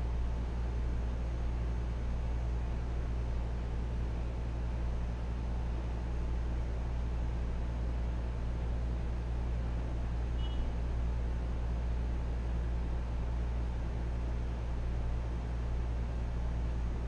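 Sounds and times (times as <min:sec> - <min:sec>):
steady low hum: 0:00.0 - 0:17.0
faint short high tone: 0:10.4 - 0:10.7.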